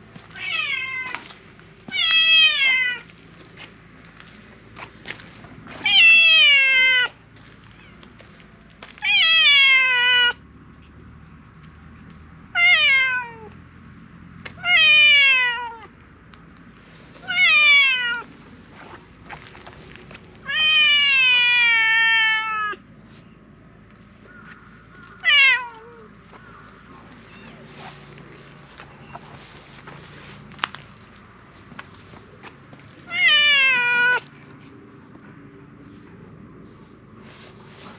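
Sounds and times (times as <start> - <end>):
cat meowing loudly: 0.3 - 1.3, 1.9 - 3.1, 5.8 - 8.0, 9.0 - 10.4, 12.5 - 13.6, 14.6 - 15.9, 17.2 - 18.3, 20.4 - 22.8, 25.2 - 26.1, 33.1 - 34.3.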